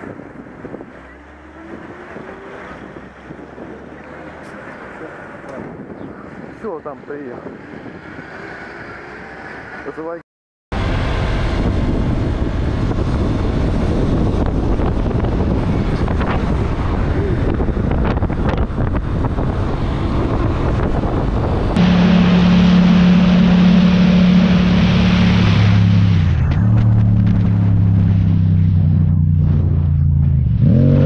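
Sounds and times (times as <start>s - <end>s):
wind buffeting microphone: 0.0s - 9.4s, 10.8s - 30.0s
motorcycle engine running: 11.7s - 30.5s.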